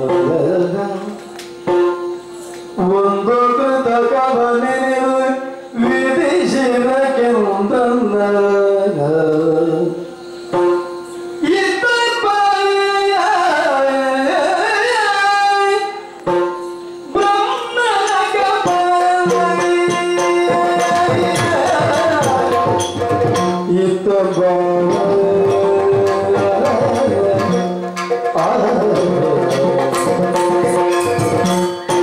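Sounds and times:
man singing ornamented vocals: 0.0 - 1.4, 2.8 - 16.2, 17.0 - 32.0
drums: 16.3 - 32.0.

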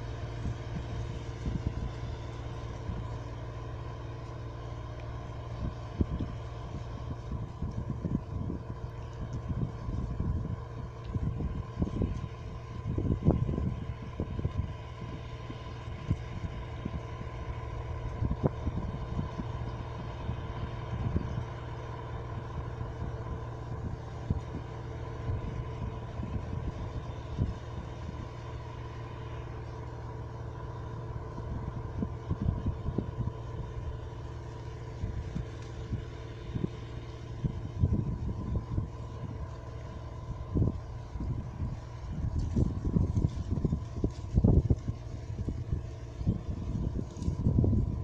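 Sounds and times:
high whine: 0.0 - 20.2
combine harvester engine drone: 0.0 - 48.0
wind buffeting microphone: 0.0 - 48.0.

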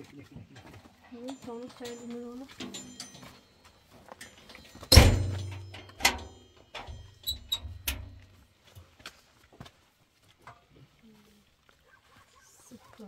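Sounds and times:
low metallic ringing: 1.1 - 8.3
metal shed door banging shut: 4.8 - 8.2
door rattling in frame: 4.9 - 6.2.

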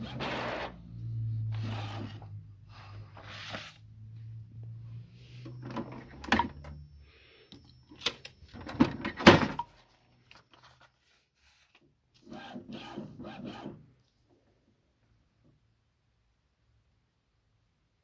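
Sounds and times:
paper feeding through printer: 0.0 - 0.8, 1.5 - 3.8, 12.2 - 13.8
printer motor hum: 0.0 - 3.5
paper rustling: 3.1 - 3.8, 9.8 - 11.8.

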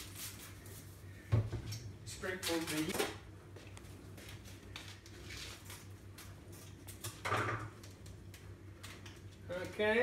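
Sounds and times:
foil sachet crinkling: 0.0 - 0.9, 4.3 - 7.2.

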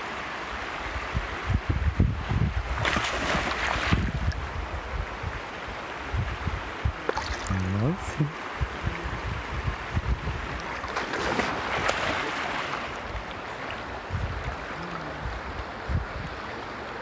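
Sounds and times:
wind rumble on microphone: 0.7 - 12.2, 12.9 - 17.0
dog splashing through water: 10.8 - 12.8.

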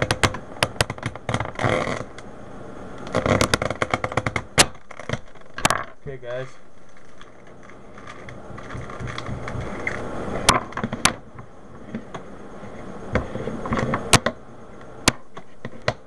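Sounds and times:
rustling: 3.0 - 14.2.

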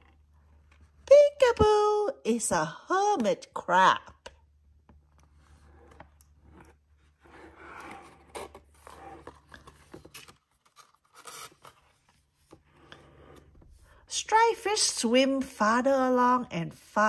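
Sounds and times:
cardboard pages scraping: 5.1 - 13.8.

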